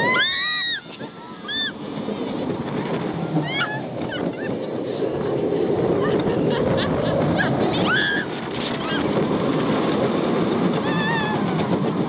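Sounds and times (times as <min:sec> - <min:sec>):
riders shrieking and whooping: 0:00.0 - 0:01.9, 0:03.3 - 0:04.8, 0:05.8 - 0:09.4, 0:10.7 - 0:11.7
roller coaster rushing: 0:00.0 - 0:12.0.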